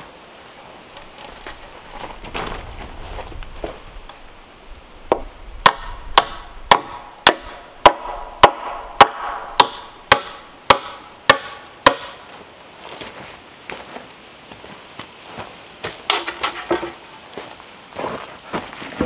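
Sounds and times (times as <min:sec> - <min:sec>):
hammer striking wood: 0:05.1 - 0:12.2.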